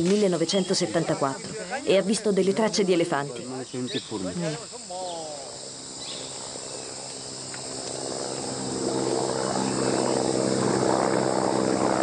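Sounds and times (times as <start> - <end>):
helicopter engine and rotor: 5.6 - 12.0.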